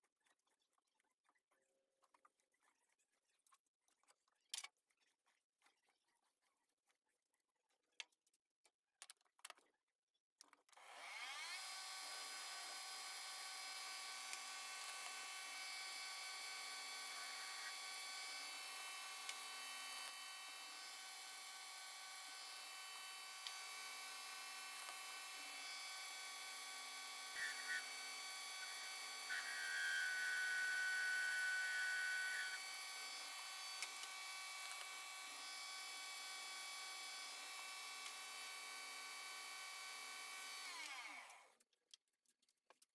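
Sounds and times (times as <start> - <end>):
metal lathe whining: 10.9 - 41.4.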